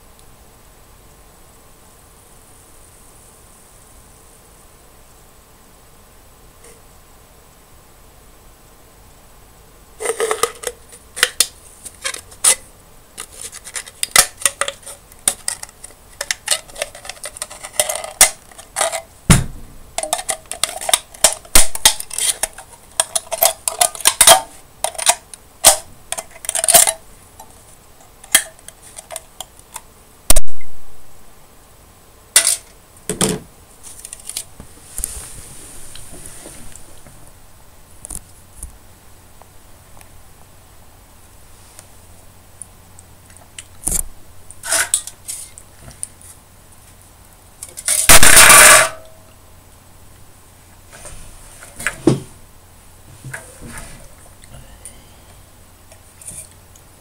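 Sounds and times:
sharp crack: 0:14.0 - 0:25.9, 0:30.3 - 0:31.0, 0:47.9 - 0:49.1.

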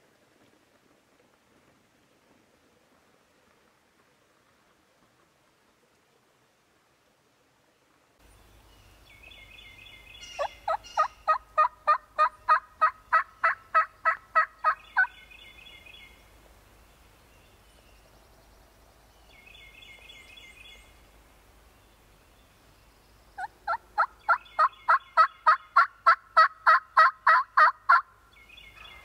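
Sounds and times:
songbird phrase: 0:07.7 - 0:11.3, 0:14.0 - 0:25.7
turkey yelps: 0:10.2 - 0:15.1, 0:23.4 - 0:28.0.

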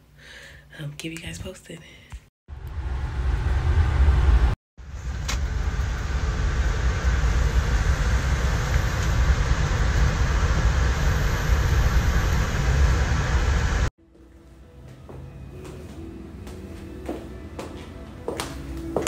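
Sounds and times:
train interior rumble: 0:02.5 - 0:13.9.

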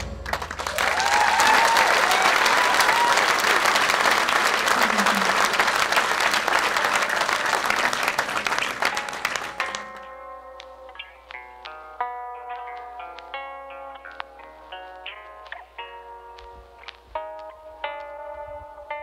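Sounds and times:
crowd cheering and calling: 0:00.0 - 0:09.8
audience applauding: 0:00.0 - 0:10.1.

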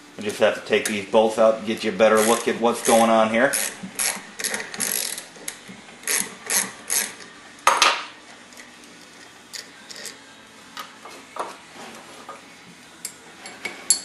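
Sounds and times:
wrench metallic clicks and scrapes: 0:01.8 - 0:07.3, 0:08.5 - 0:10.2.

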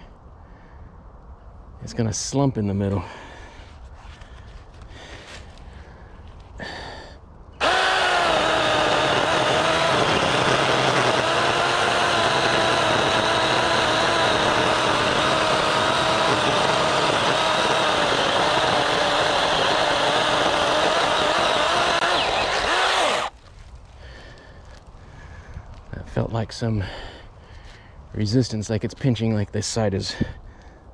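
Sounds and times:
chainsaw cutting tree trunk: 0:07.6 - 0:23.4.

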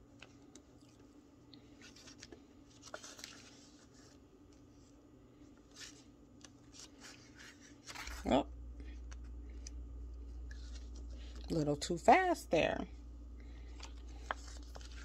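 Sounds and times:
low steady hum: 0:00.0 - 0:15.0
paper pages turning: 0:01.6 - 0:08.4, 0:09.1 - 0:11.6, 0:13.6 - 0:15.0.

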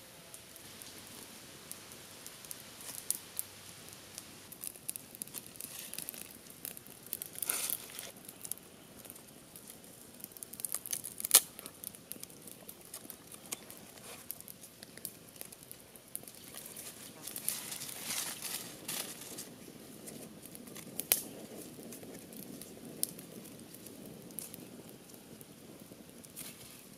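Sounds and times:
bamboo strips crackling and clicking: 0:00.3 - 0:25.6, 0:26.2 - 0:26.9
bamboo snapping: 0:10.6 - 0:11.7.

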